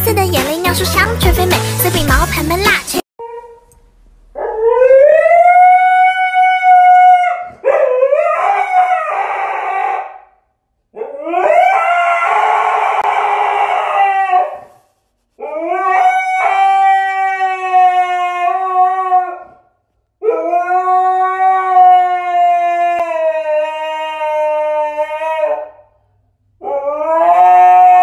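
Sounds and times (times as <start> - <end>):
husky howling: 4.4 - 10.4, 11.0 - 14.8, 15.4 - 25.9, 26.6 - 28.0.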